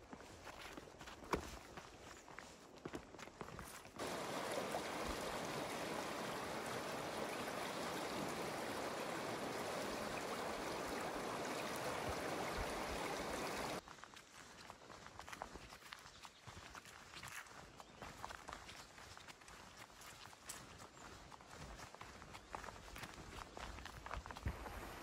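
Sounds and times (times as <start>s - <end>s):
footsteps on dirt path: 0.0s - 11.4s, 12.0s - 25.0s
river rushing over stones: 4.0s - 13.8s.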